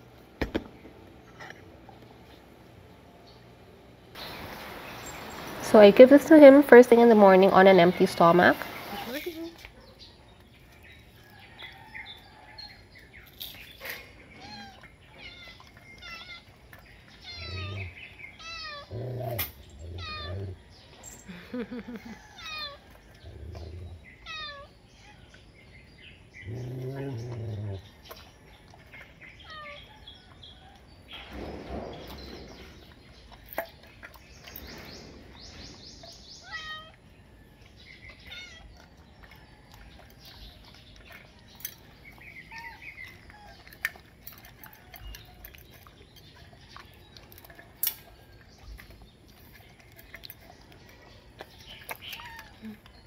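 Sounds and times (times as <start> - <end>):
small birds chirping: 3.2 - 53.0
cat meowing: 19.9 - 20.5, 24.2 - 24.7, 36.4 - 37.0
dog licking a metal bowl: 37.6 - 53.0.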